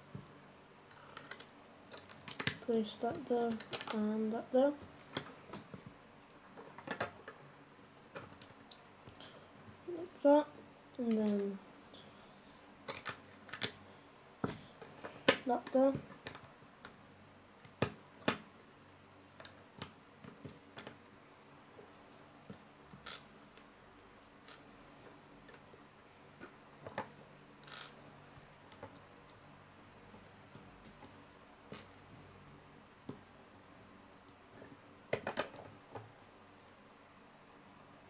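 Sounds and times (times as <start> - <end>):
plastic bricks clicking together: 0.9 - 2.6, 3.5 - 4.0, 12.9 - 13.8.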